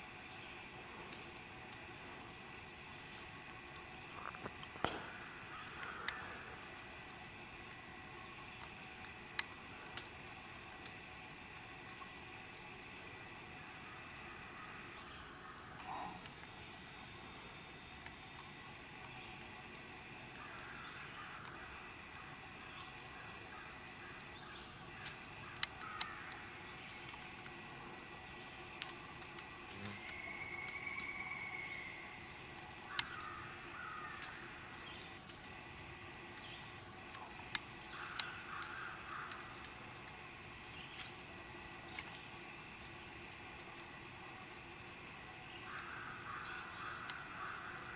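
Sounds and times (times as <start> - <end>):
insects droning: 0.0 - 47.9
faint calls and clicks: 25.0 - 27.8, 32.5 - 34.4, 36.3 - 40.2.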